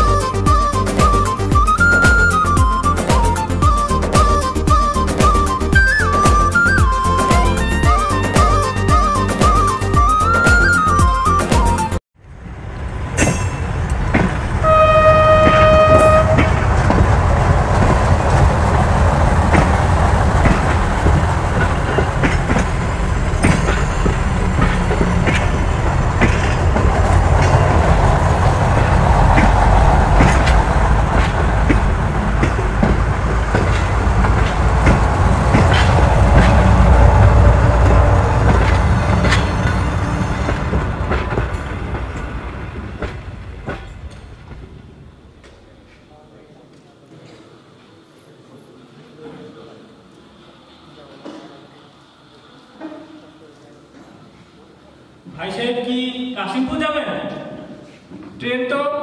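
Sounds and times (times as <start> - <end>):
rail clatter: 0.0 - 46.1
train rumbling on rails: 0.0 - 55.5
train horn blast: 14.6 - 16.9, 32.4 - 41.6.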